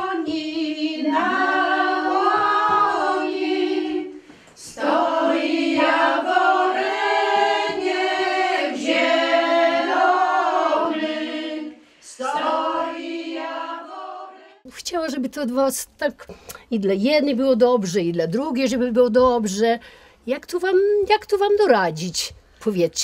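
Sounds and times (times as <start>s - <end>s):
women singing unaccompanied: 0.0s - 14.7s.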